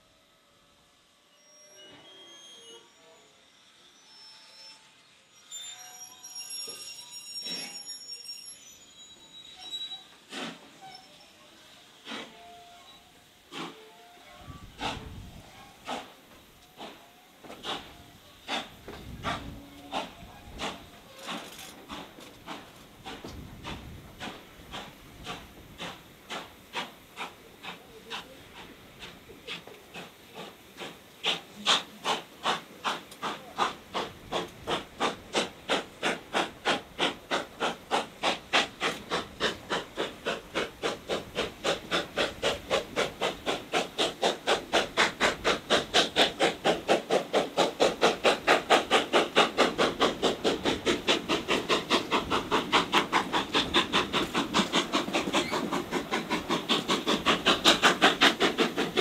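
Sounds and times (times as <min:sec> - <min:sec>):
steam locomotive exhaust beats: 0:10.2 - 0:59.0.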